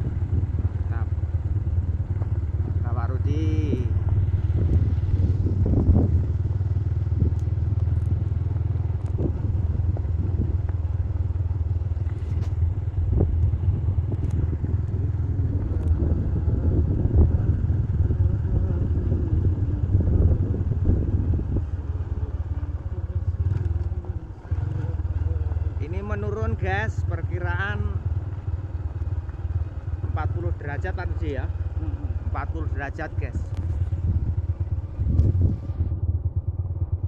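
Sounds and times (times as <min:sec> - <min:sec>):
motorcycle engine riding: 0:00.0 - 0:37.0.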